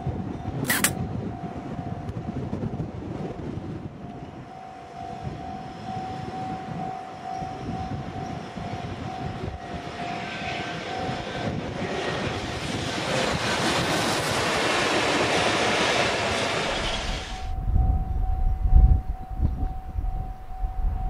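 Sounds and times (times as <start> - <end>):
freight train passing: 0.9 - 21.0
train wheels rumbling on rails: 1.9 - 21.0
level-crossing alarm ringing: 4.1 - 11.3, 17.5 - 21.0.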